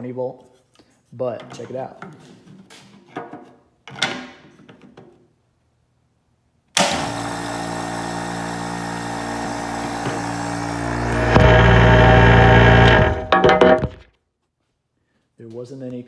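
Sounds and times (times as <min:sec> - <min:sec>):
diaphragm pump humming: 0:09.4 - 0:13.4.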